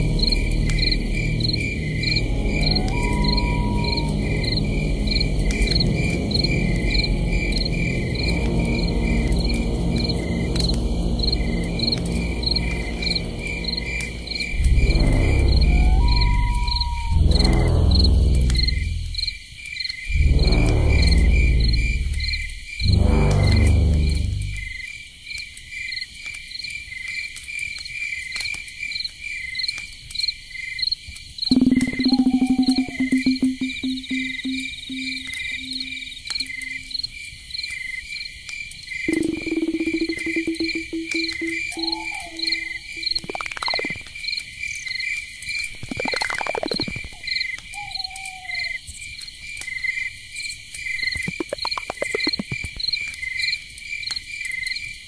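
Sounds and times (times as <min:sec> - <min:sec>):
crickets chirping: 0:00.0 - 0:25.2, 0:29.0 - 0:55.0
low pulsing tone: 0:31.5 - 0:37.0, 0:39.1 - 0:44.0
faint ticks: 0:38.5 - 0:44.1.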